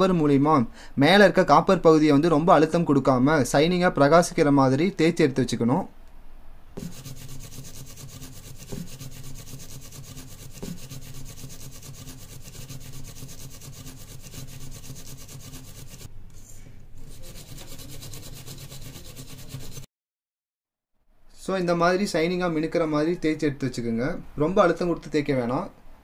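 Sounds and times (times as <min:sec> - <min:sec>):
steel wool scrubbing metal: 0:06.8 - 0:16.1, 0:17.0 - 0:19.9.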